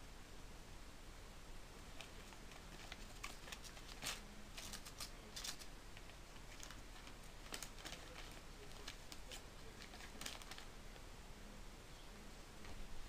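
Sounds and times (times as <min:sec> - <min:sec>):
paper rustling and crinkling: 0:01.8 - 0:10.8.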